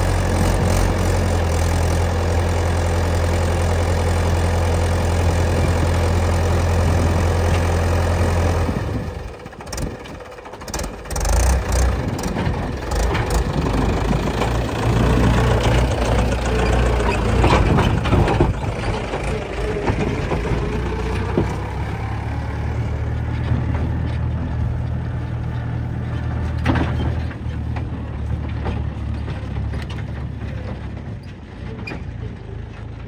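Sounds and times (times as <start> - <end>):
heavy diesel engine running: 0.0 - 33.0.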